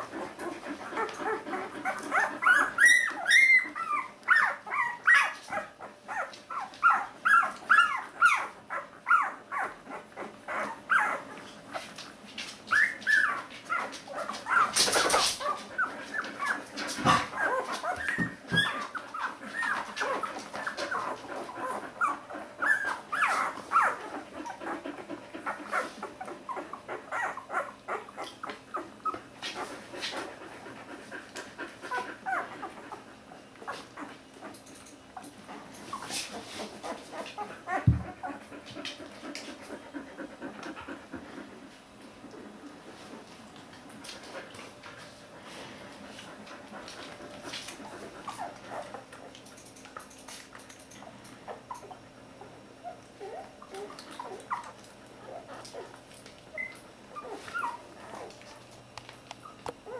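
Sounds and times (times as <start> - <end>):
puppies squeaking and whimpering: 0.1 - 11.7, 12.7 - 29.8, 31.8 - 35.2, 35.8 - 38.4, 51.5 - 58.4.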